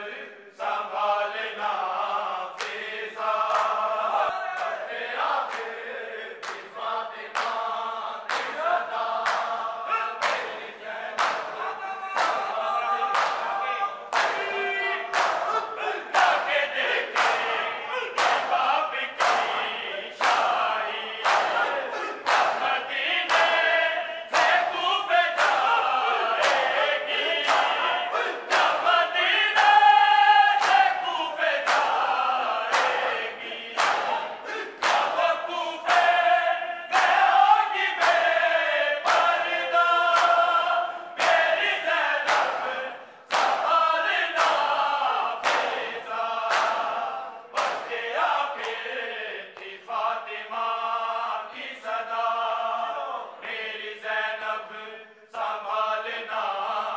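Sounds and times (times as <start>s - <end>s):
men chanting with lead reciter: 0.0s - 56.9s
hands slapping bare chests: 3.5s - 3.8s, 8.3s - 8.6s, 9.2s - 9.6s, 10.2s - 10.6s, 11.2s - 11.6s, 14.1s - 16.5s, 17.1s - 17.6s, 18.2s - 18.6s, 19.2s - 22.7s, 23.3s - 23.6s, 24.3s - 24.7s, 25.3s - 26.8s, 27.4s - 28.9s, 30.6s - 30.9s, 31.6s - 32.1s, 32.7s - 33.2s, 33.8s - 35.2s, 36.9s - 38.3s, 39.0s - 39.4s, 41.2s - 43.8s, 44.4s - 44.8s, 45.4s - 47.0s, 47.6s - 48.0s.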